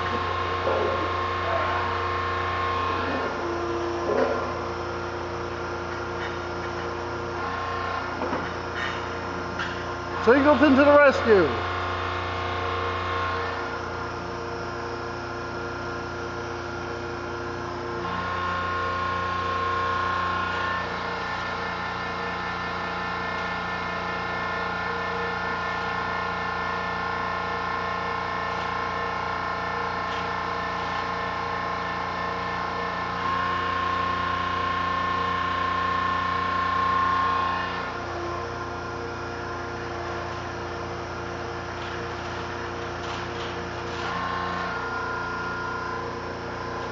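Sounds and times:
hydraulic pump motor humming: 0.0s - 46.9s.

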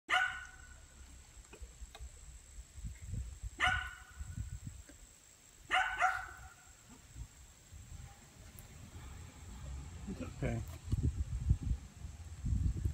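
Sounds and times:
dog barking: 0.1s - 0.8s, 3.6s - 4.2s, 5.7s - 6.7s.

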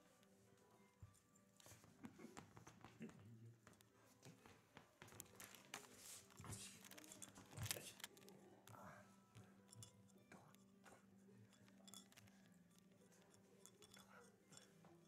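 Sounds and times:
rustling and crinkling: 3.8s - 8.4s.

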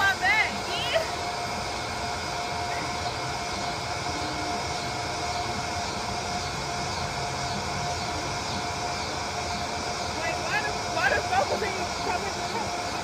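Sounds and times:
small fan motor whining: 0.0s - 13.0s.

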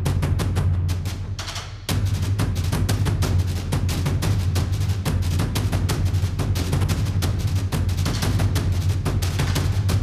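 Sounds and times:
instrumental music with driving beat: 0.0s - 10.0s.

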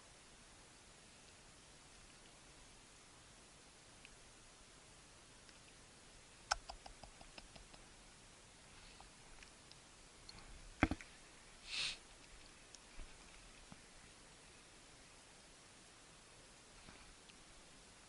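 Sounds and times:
faint ticks: 5.4s - 5.8s, 6.4s - 8.0s, 12.2s - 13.8s, 16.8s - 17.5s.

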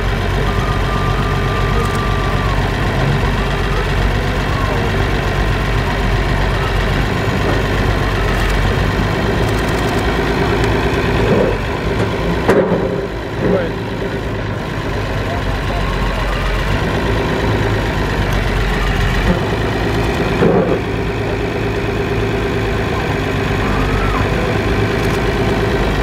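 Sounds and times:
tractor engine running slowly: 0.0s - 26.0s.

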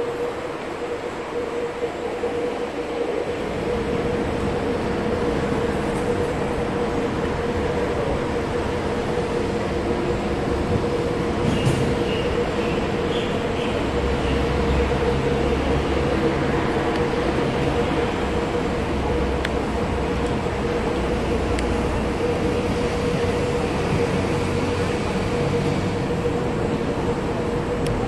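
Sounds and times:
train rumbling: 0.0s - 28.0s
click: 27.8s - 28.0s.

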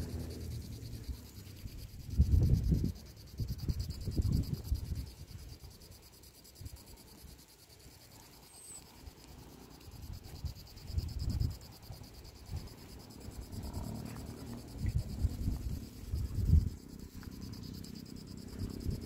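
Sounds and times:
wind rumble on microphone: 0.0s - 5.6s, 10.0s - 19.0s
insect chorus trilling: 0.0s - 19.0s.

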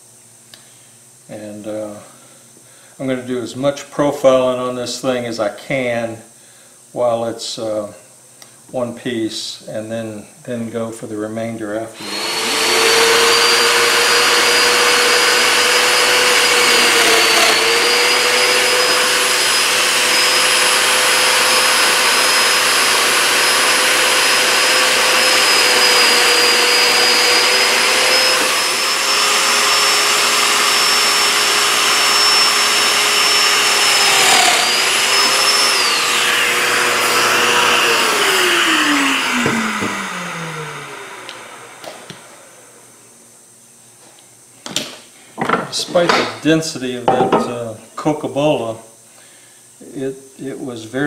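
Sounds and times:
power tool motor running: 12.0s - 42.8s.

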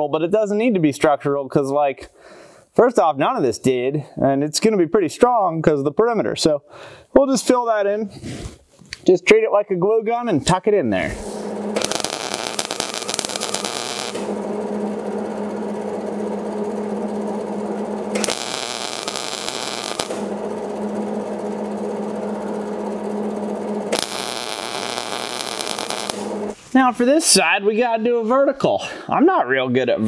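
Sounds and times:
steady low hum: 9.4s - 26.7s
welder arc crackling: 11.0s - 26.6s.

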